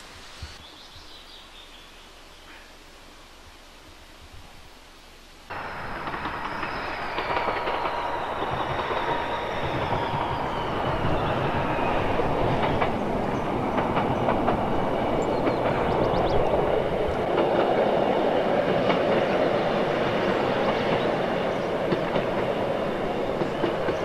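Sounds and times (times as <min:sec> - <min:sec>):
diesel train rumbling: 0:05.5 - 0:24.0.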